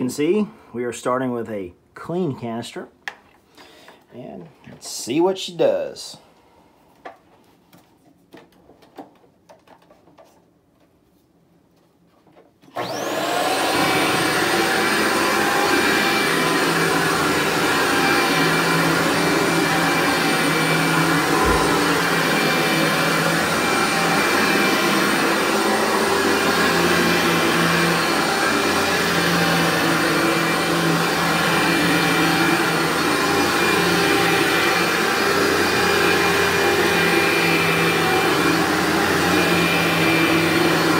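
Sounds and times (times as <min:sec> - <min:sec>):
upright vacuum cleaner motor whine: 0:12.6 - 0:40.9.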